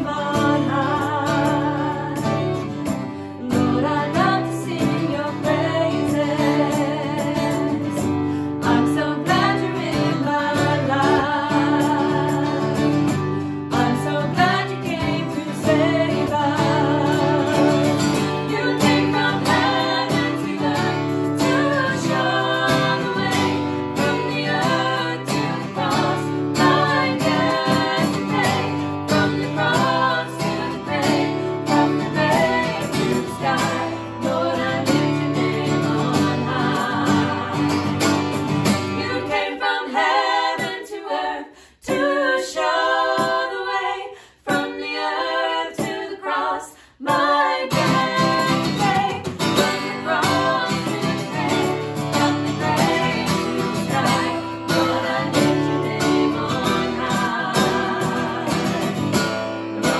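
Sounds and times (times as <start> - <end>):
strummed acoustic guitar: 0.0 - 41.0, 47.0 - 59.9
women singing together: 0.0 - 59.9.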